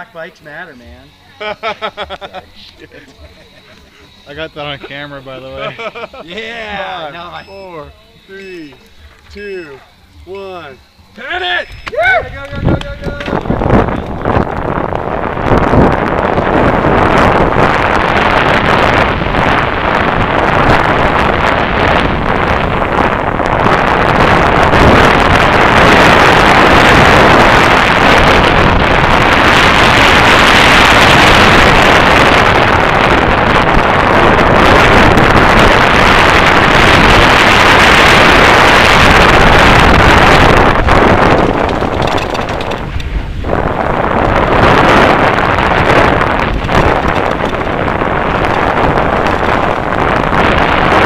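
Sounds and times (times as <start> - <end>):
wind rushing on microphone: 0.0 - 51.0
bike tyre and frame clatter: 11.2 - 31.4, 34.0 - 51.0.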